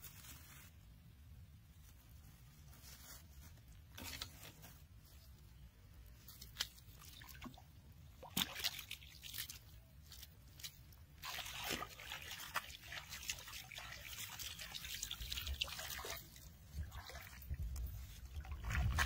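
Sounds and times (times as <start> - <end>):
water splashing on wet sand: 11.2 - 17.4.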